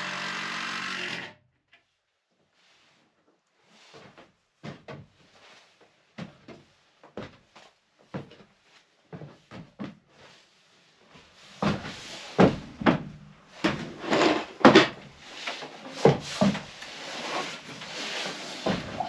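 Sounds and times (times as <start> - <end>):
wood scraping: 13.6 - 19.0.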